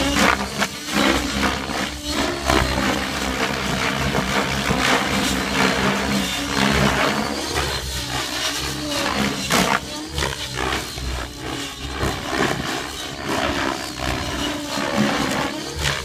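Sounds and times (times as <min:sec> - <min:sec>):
model helicopter rotor whooshing: 0:00.0 - 0:16.0.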